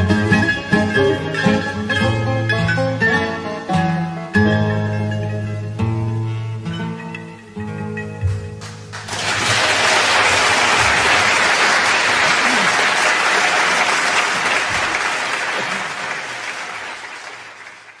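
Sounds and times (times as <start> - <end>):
audience applauding: 8.6 - 18.0.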